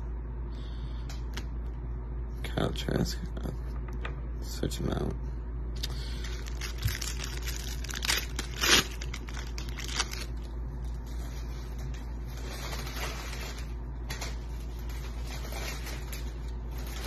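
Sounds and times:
cards rustling: 0:06.1 - 0:11.0.

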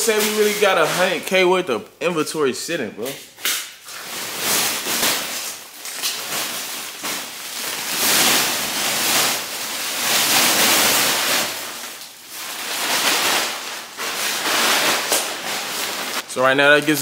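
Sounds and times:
garments sliding out of bags: 0:03.9 - 0:16.2.

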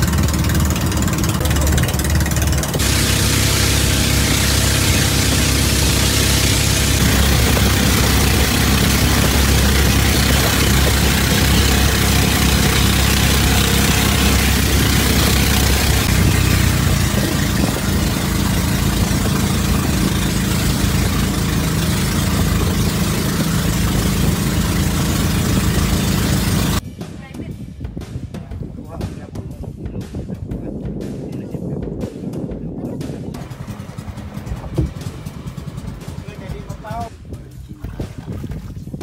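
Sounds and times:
wind and water rushing: 0:00.0 - 0:26.8, 0:33.4 - 0:39.0
boat engine running: 0:00.0 - 0:39.0.

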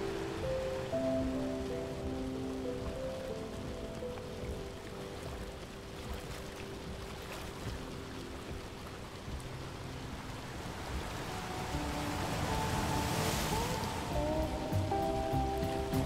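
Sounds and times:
rain: 0:00.0 - 0:16.0
river water lapping on rocks: 0:00.0 - 0:16.0
wind: 0:00.0 - 0:16.0.

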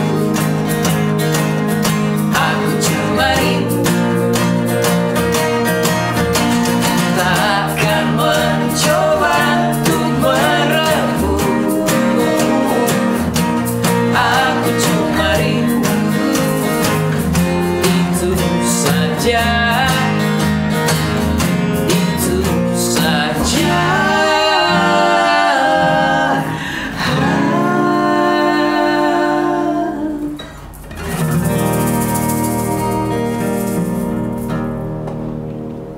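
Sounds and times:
male lead vocal: 0:00.0 - 0:00.6, 0:02.0 - 0:05.1, 0:06.8 - 0:20.5, 0:21.7 - 0:30.5
acoustic guitars strummed: 0:00.0 - 0:35.9
male voices singing harmonies: 0:01.8 - 0:05.4, 0:06.8 - 0:20.4, 0:21.8 - 0:30.5.

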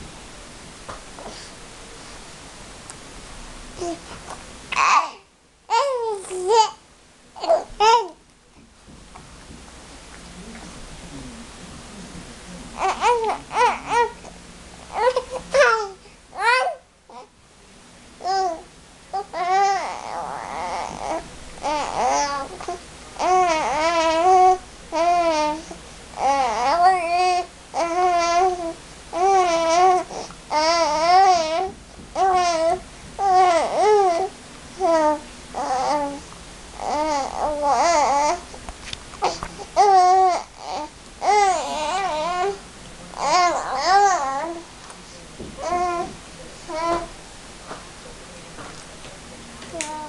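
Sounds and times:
baby cooing and babbling: 0:03.8 - 0:04.1, 0:04.7 - 0:06.8, 0:07.4 - 0:08.2, 0:12.8 - 0:17.3, 0:18.2 - 0:38.6, 0:39.2 - 0:42.6, 0:43.2 - 0:44.7, 0:45.6 - 0:46.1, 0:46.7 - 0:47.1, 0:49.7 - 0:50.0.

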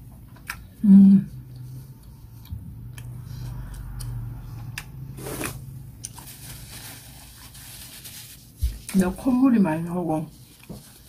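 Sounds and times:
chewing with wet mouth clicks: 0:00.3 - 0:00.8, 0:01.5 - 0:05.0
paper tissue rustling: 0:05.2 - 0:11.0.

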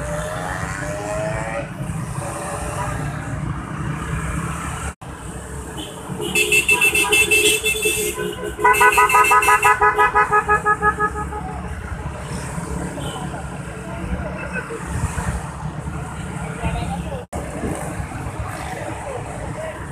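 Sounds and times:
scooter engines: 0:00.0 - 0:19.9
scooter horns beeping: 0:06.2 - 0:11.5.

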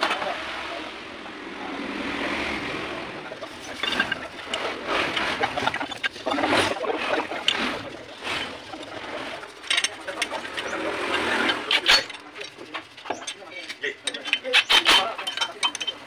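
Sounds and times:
metal clinks and knocks: 0:03.4 - 0:16.0
sharp metal clatter: 0:03.4 - 0:16.0.

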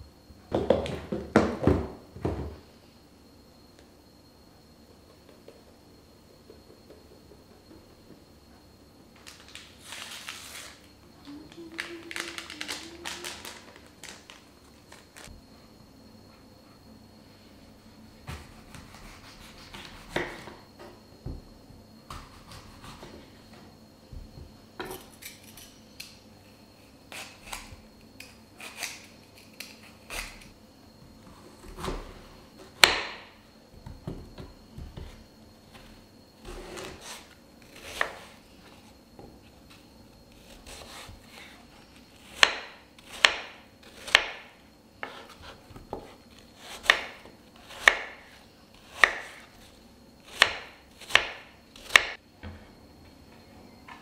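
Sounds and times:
knife chopping on wooden board: 0:49.0 - 0:49.4.

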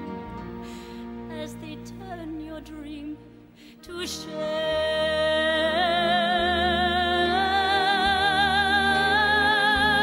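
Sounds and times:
soft instrumental accompaniment: 0:00.0 - 0:10.0
woman singing a slow ballad: 0:03.8 - 0:10.0.

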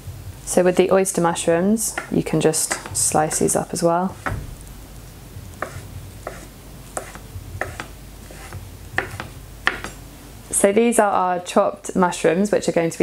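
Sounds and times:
knife slicing onto wooden board: 0:05.6 - 0:10.0.

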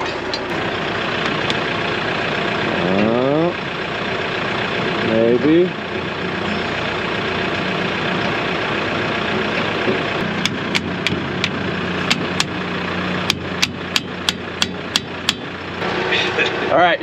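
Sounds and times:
tractor diesel engine idling: 0:00.0 - 0:17.0
hammer tapping on metal: 0:13.3 - 0:15.5.

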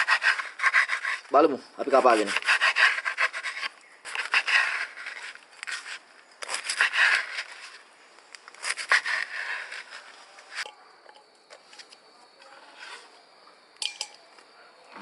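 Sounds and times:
knife sawing through fritters: 0:00.0 - 0:07.8, 0:08.6 - 0:10.7.

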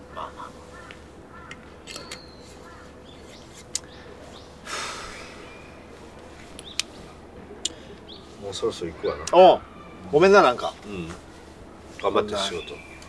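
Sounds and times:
faint bird chirps: 0:00.1 - 0:05.9
breathy rush of noise: 0:03.9 - 0:08.7.

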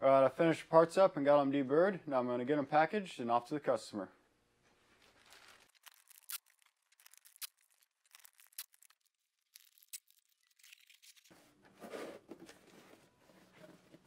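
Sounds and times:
plastic bag crinkling: 0:04.8 - 0:11.3.

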